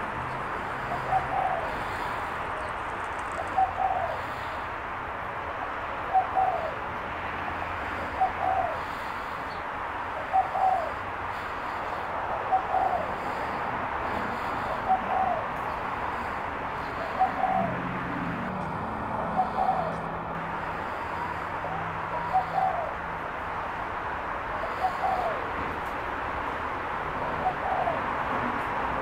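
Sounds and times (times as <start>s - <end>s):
dove cooing: 0.0s - 4.7s, 5.5s - 6.8s, 8.0s - 20.1s, 20.7s - 23.6s, 24.5s - 25.9s, 27.0s - 28.6s.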